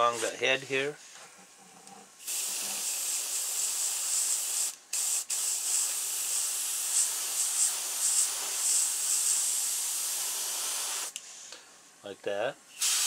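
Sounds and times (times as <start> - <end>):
airbrush spraying hiss: 2.2 - 11.2, 12.8 - 13.0.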